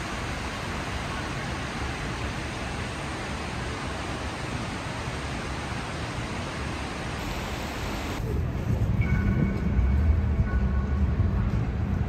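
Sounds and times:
fountain water splashing: 0.0s - 8.2s.

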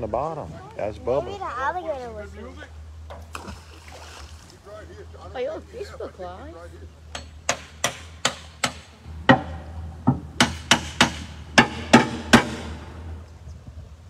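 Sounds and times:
banging on boat hull: 7.6s - 12.9s.

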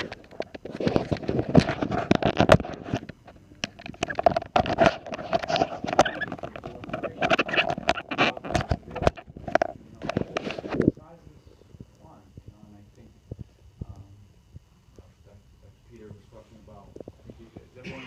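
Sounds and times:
handling knocks clicks and scrapes: 0.0s - 11.0s.

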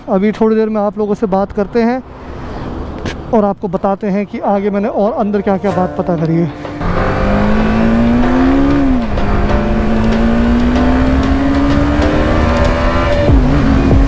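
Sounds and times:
motorcycle engine accelerating: 6.8s - 14.0s.

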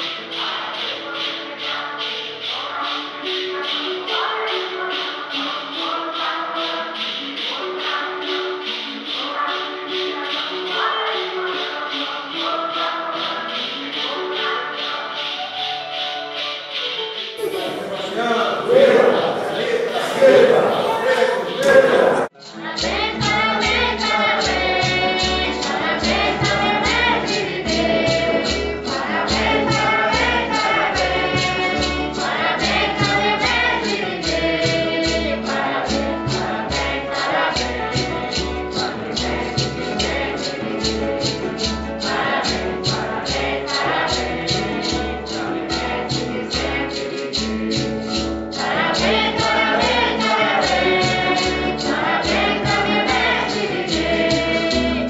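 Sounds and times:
choir singing a hymn: 0.0s - 15.4s, 17.4s - 55.0s
steady percussive beat: 12.8s - 55.0s.

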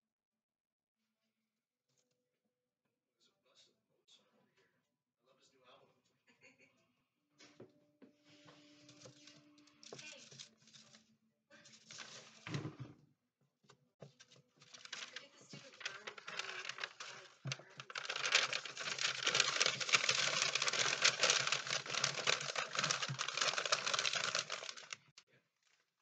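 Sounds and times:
newspaper crumpling and rustling: 9.0s - 12.7s, 14.2s - 25.1s.

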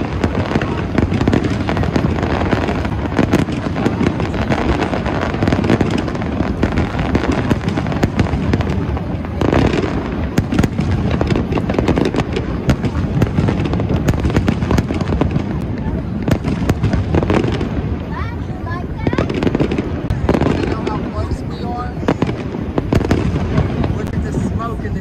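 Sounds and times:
firework booms: 0.0s - 25.0s
firework crackles: 0.0s - 25.0s.

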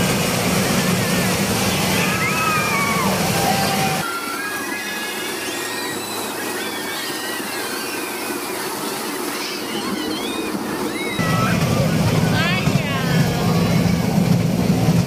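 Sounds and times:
ride cars rattling on track: 0.0s - 15.0s
high wavering squeals: 3.8s - 11.6s.

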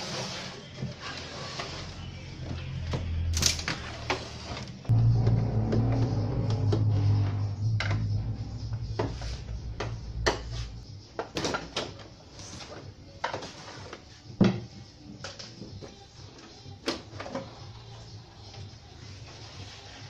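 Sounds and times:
low hum: 4.8s - 11.1s.

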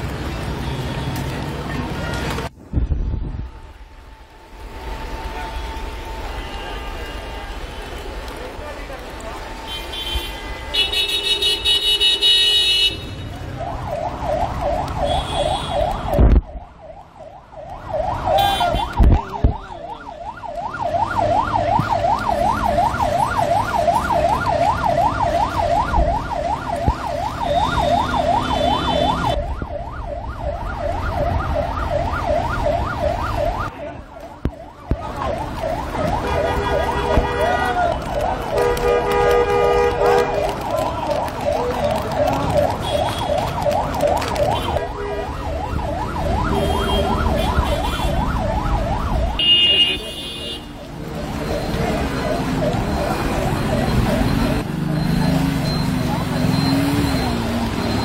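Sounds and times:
yelping siren wailing: 13.3s - 38.6s, 40.3s - 49.5s, 50.7s - 58.0s.

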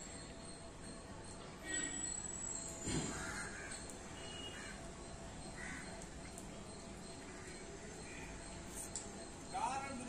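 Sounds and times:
crow cawing: 3.1s - 4.8s, 5.6s - 6.0s, 7.3s - 8.4s.

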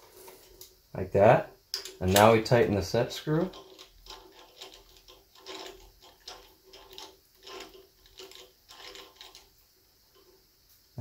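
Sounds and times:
hex key clicking and scraping metal: 3.3s - 10.3s.

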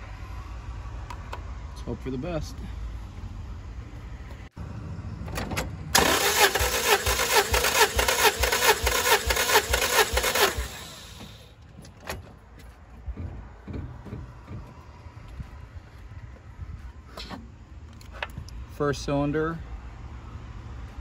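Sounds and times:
starter motor cranking engine: 6.0s - 11.5s.

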